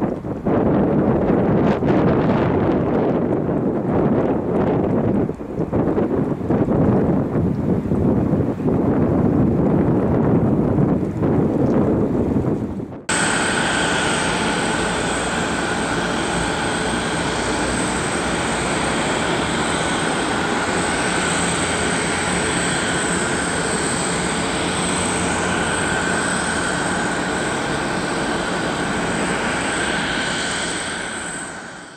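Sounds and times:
jet engines rushing: 12.3 - 31.9
high engine whine: 13.0 - 31.9.

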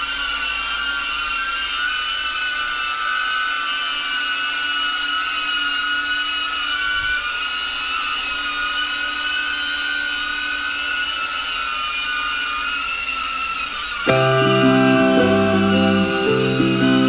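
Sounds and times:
drone propellers whining: 14.0 - 17.0.

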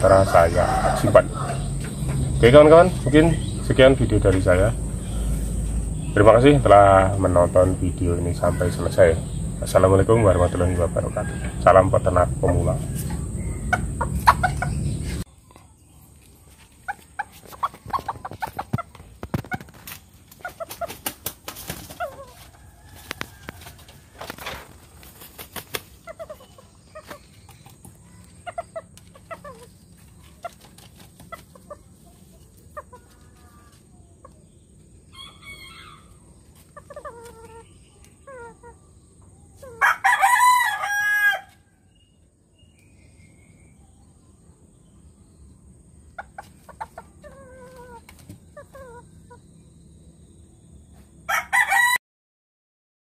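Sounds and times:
rooster crowing: 0.0 - 1.9, 10.2 - 14.8, 22.3 - 24.6, 35.1 - 36.3, 39.6 - 41.9, 51.2 - 52.0
soft clucking: 12.4 - 15.2.

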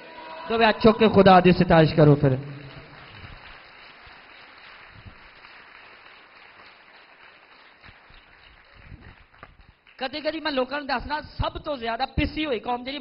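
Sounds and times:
congregation voices: 0.0 - 3.6.

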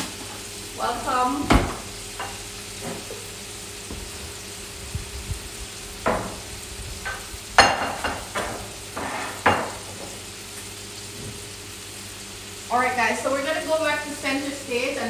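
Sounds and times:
oil popping and crackling: 0.0 - 11.5
food deep-frying in oil: 0.0 - 15.0.

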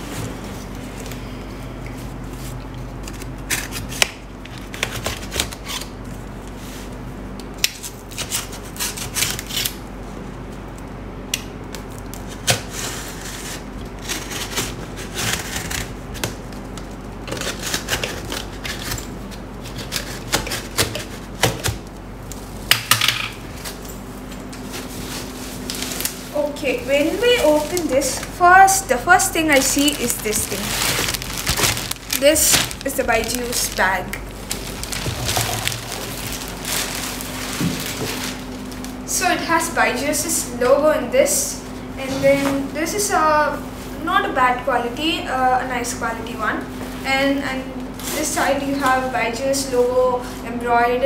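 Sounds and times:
packing tape peeling off cardboard: 29.6 - 38.9.

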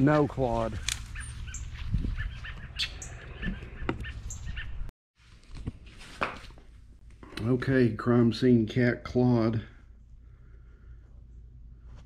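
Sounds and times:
small birds chirping: 0.5 - 4.9.

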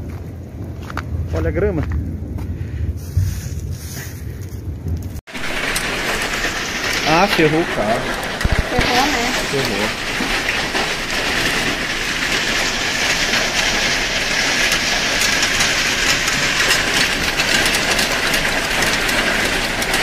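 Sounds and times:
hail pelting on pavement: 5.3 - 20.0.

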